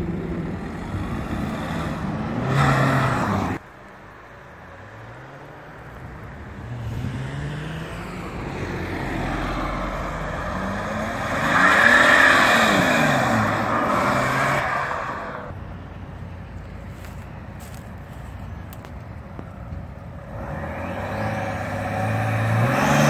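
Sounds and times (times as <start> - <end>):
car engine accelerating away: 20.2 - 23.0.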